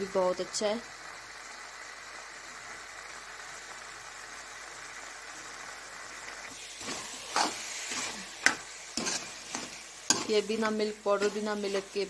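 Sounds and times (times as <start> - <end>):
food sizzling in a pan: 0.0 - 12.0
spoon scraping: 6.6 - 12.0.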